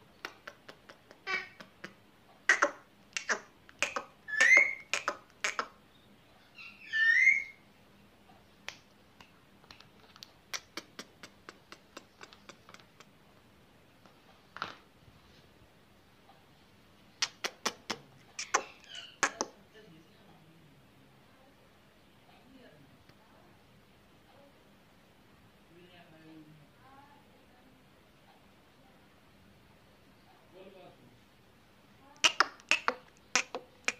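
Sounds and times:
parakeet chirps: 0:02.5 - 0:07.6, 0:18.4 - 0:19.4
finger snaps: 0:08.7 - 0:13.1, 0:17.2 - 0:19.5.

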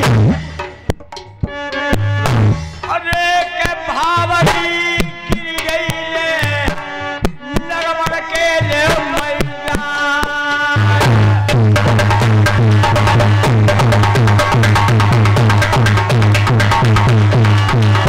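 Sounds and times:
man singing into microphone: 0:02.8 - 0:11.6
hand drum strokes: 0:11.5 - 0:18.0.

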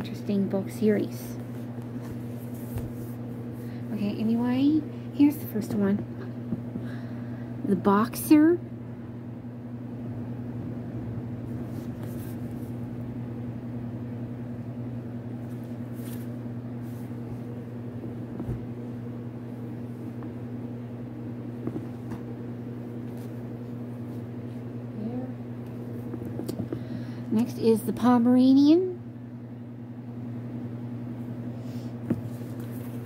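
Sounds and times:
steady low hum: 0:00.0 - 0:33.0
book rustling and tapping: 0:21.6 - 0:22.3.

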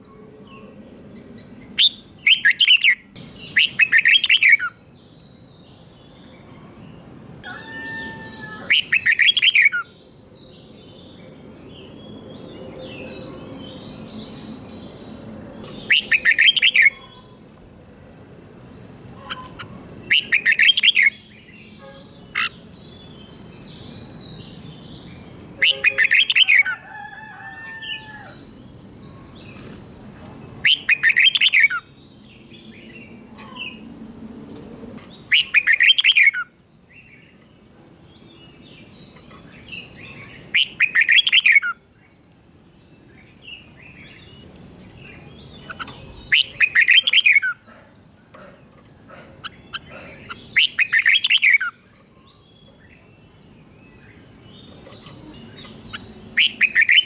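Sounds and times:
bulbul singing: 0:07.5 - 0:17.5, 0:19.2 - 0:26.6, 0:30.6 - 0:33.0, 0:35.2 - 0:57.0.

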